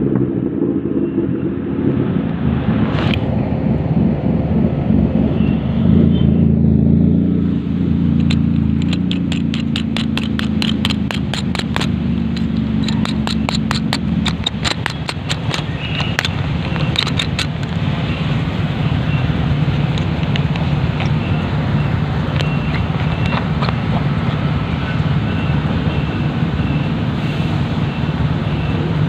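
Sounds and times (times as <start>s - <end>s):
motorcycle engine idling: 7.8s - 27.1s
rapid sharp taps: 8.2s - 17.8s.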